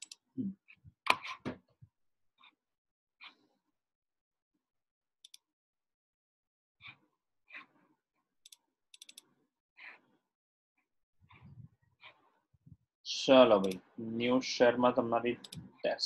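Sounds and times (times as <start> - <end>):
computer clicks: 13.6 - 13.8.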